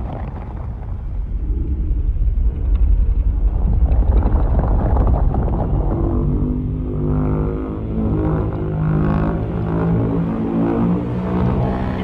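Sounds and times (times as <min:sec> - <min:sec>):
deep rumbling rush: 0:00.0 - 0:12.0.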